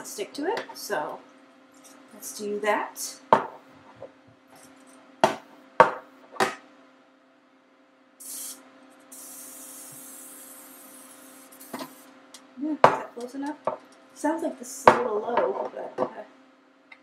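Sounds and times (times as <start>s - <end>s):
aerosol cooking spray hiss: 8.2s - 12.1s.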